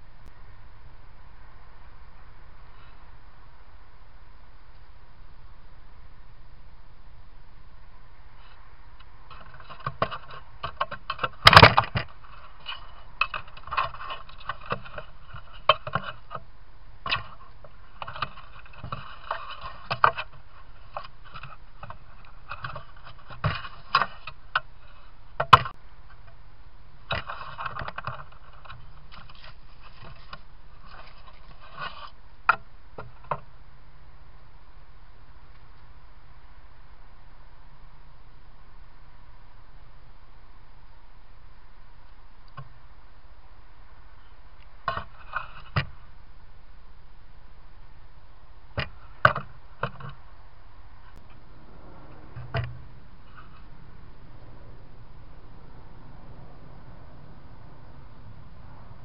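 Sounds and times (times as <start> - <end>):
microphone hiss: 0.0 - 59.0
foxes scuffling and scratching: 8.4 - 25.8, 27.0 - 33.5.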